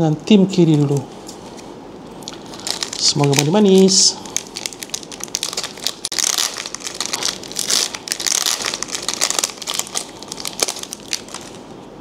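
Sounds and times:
foil wrapper tearing and crinkling: 2.2 - 11.6.

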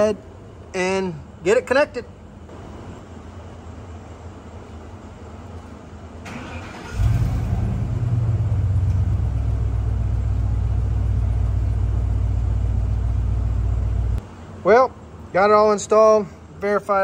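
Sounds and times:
truck engine starting and idling: 5.9 - 14.2.

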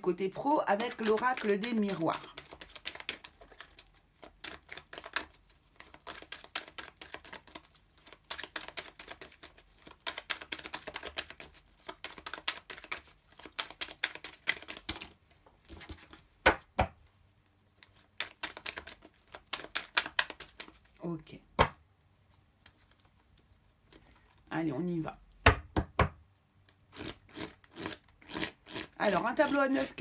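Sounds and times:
cards being shuffled: 0.7 - 16.7, 17.8 - 21.0, 22.6 - 24.1.

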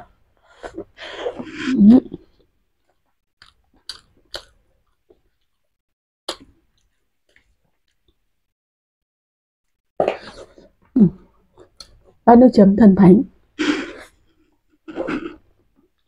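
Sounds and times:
mouth clicks while chewing: 2.8 - 8.2, 11.5 - 12.2.

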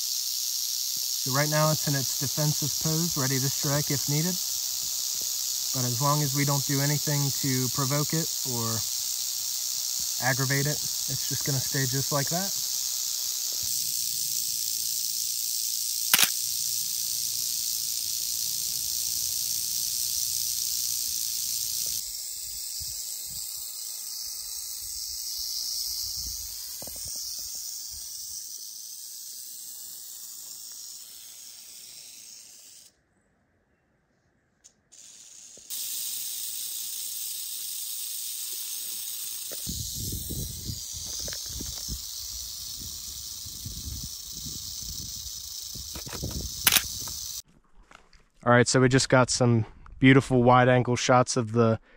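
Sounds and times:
rattlesnake rattling buzz: 0.0 - 33.0, 34.7 - 47.5
sharp click: 16.1 - 16.4, 45.9 - 47.2.

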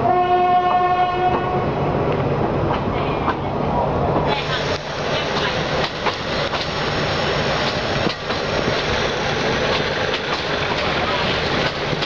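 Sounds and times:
train wheels rumbling on rail: 0.0 - 12.0
clacks over rail joints: 4.2 - 6.9, 7.5 - 12.0.

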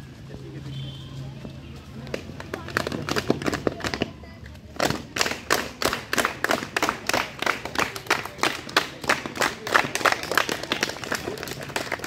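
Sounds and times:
children clapping in rhythm: 2.1 - 4.1, 4.8 - 12.0.

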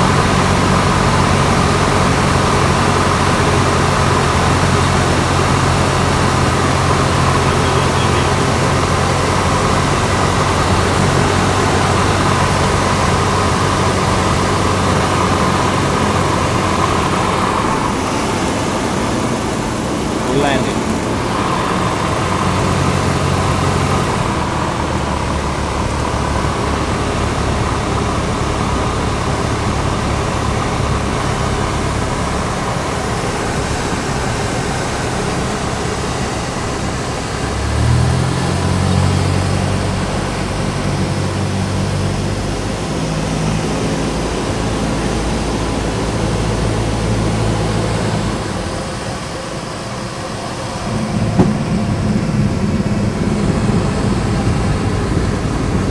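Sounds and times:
light aircraft engine and propeller: 0.0 - 55.9
sharp knock: 51.3 - 51.6.

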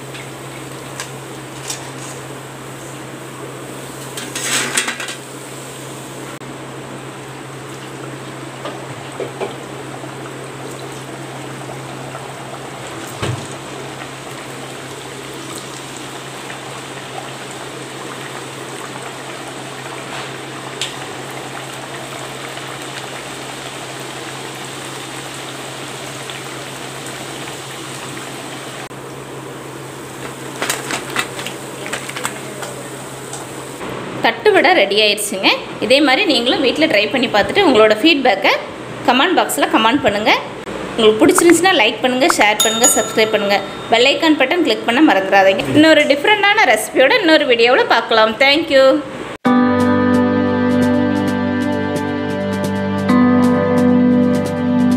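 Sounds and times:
food sizzling in hot oil: 9.5 - 28.9.

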